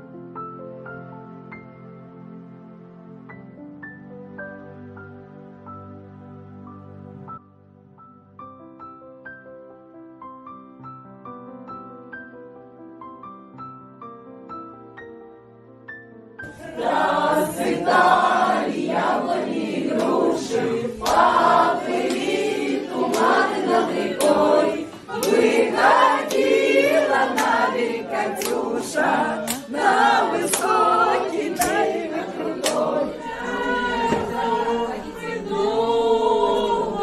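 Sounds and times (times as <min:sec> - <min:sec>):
group of voices singing: 0:16.4 - 0:37.0.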